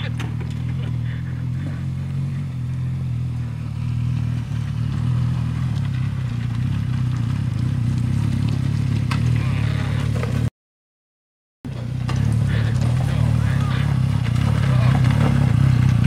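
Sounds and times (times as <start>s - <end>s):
tyres over loose rock: 0.0s - 2.4s, 11.7s - 16.0s
motorcycle engine running: 0.0s - 10.5s, 11.7s - 16.0s.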